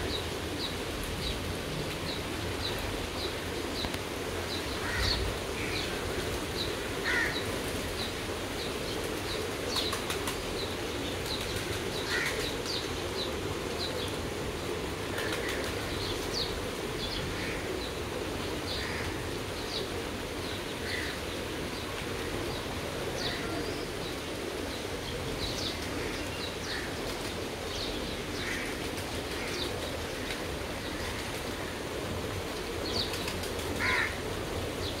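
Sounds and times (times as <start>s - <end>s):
steady rain: 0.0s - 35.0s
pigeons flapping wings: 9.0s - 12.8s, 15.1s - 15.9s, 33.0s - 33.9s.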